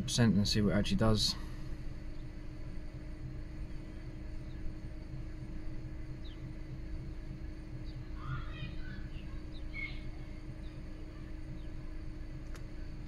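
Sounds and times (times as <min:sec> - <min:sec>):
car engine idling unevenly: 0:00.0 - 0:13.0
faint high chirps: 0:07.8 - 0:12.2.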